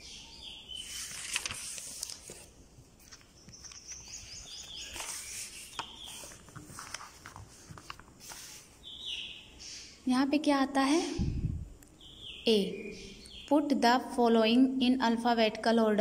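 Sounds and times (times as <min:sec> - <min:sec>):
paper pages rustling: 0:00.8 - 0:08.8
small bird chirping: 0:03.2 - 0:06.5, 0:08.8 - 0:10.1, 0:11.2 - 0:13.6.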